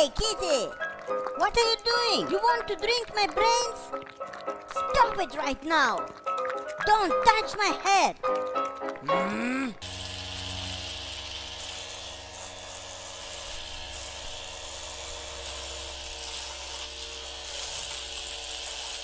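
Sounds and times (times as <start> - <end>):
power tools whirring: 9.8 - 19.0.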